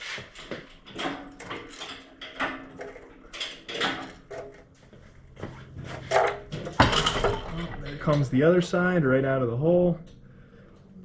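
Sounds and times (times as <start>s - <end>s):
metal clunks and knocks: 0.4s - 4.7s, 5.3s - 8.3s.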